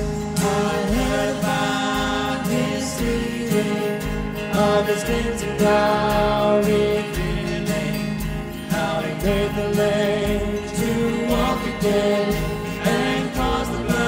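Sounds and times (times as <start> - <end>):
congregation singing: 0.0 - 14.0
worship band playing: 0.0 - 14.0.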